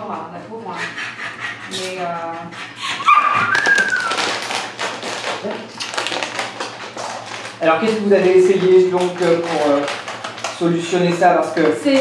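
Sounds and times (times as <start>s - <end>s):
dog whining: 1.4s - 4.5s
dog claws tapping on tiles: 3.4s - 12.0s.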